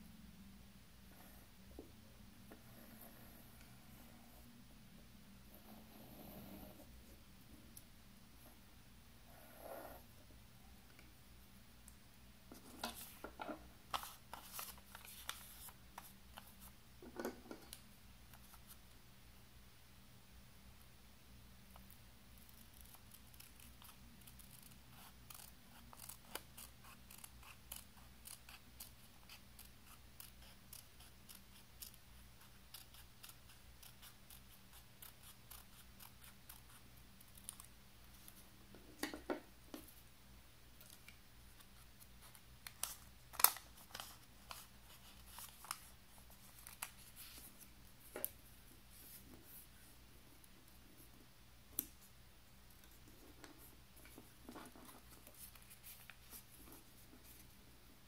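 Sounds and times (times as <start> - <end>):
scissors snipping paper: 22.8 - 36.7.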